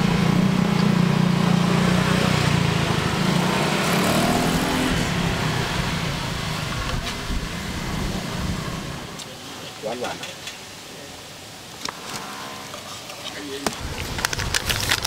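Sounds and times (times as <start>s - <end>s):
vehicle engine humming: 0.0s - 9.6s.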